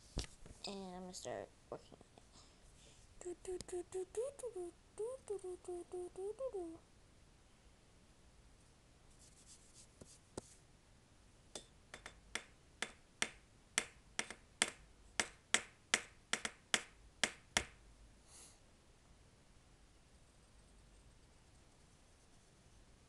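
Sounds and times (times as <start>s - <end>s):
pen tapping on paper: 12.0s - 17.8s.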